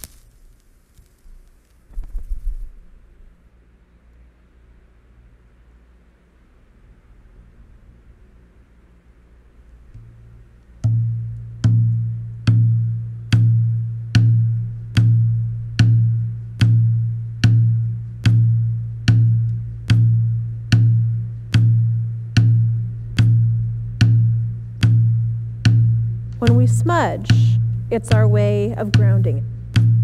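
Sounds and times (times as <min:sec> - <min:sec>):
hand drum beats: 0:10.8 - 0:30.0.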